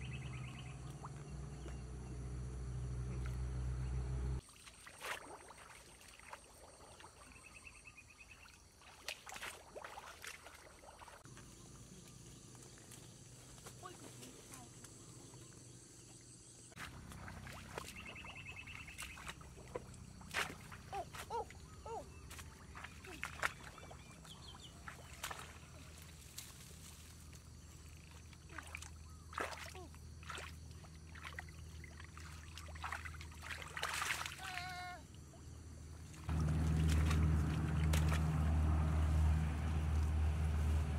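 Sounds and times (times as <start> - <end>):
sharp splashes and knocks: 4.4 - 7.3, 8.7 - 11.2, 16.8 - 21.3, 22.2 - 26.7, 28.0 - 34.7, 36.1 - 39.0
feet sloshing through water: 4.4 - 13.0, 16.7 - 40.8
low rumble of wind: 35.5 - 40.9.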